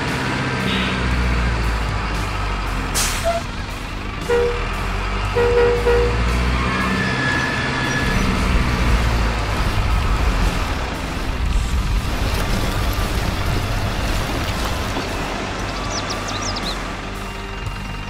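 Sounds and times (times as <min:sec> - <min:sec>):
diesel truck engine running: 0:00.0 - 0:18.0
horn toots: 0:00.6 - 0:01.3, 0:03.0 - 0:08.6
air brake hiss: 0:03.0 - 0:03.4.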